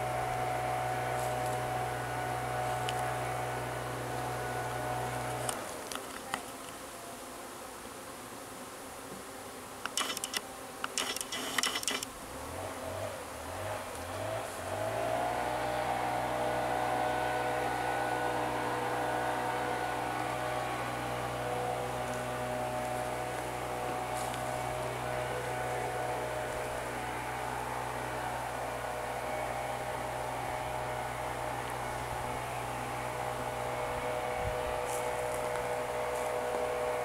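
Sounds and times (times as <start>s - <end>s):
motor humming: 0.0s - 6.8s, 9.8s - 13.4s, 14.9s - 37.0s
sharp clicks: 9.8s - 12.1s.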